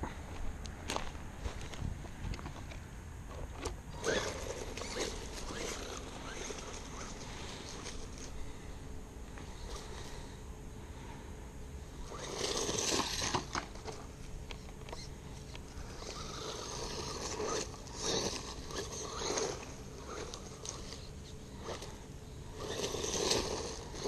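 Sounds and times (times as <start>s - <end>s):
faint electric motor whine: 0.0s - 24.0s
tyres crunching over dirt: 0.3s - 8.6s, 15.7s - 24.0s.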